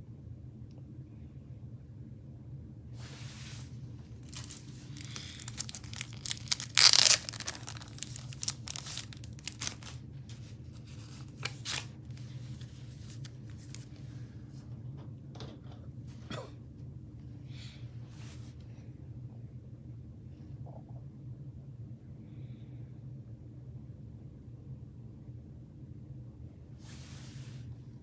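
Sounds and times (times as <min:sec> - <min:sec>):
paper crinkling and rustling: 0:04.1 - 0:14.0
paper tearing: 0:04.2 - 0:10.0.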